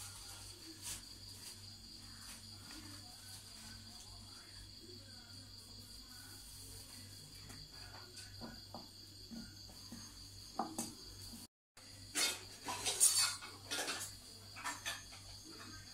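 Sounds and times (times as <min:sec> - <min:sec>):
crickets chirring: 0:00.0 - 0:15.9
bowls and spoons clinking: 0:12.1 - 0:15.9.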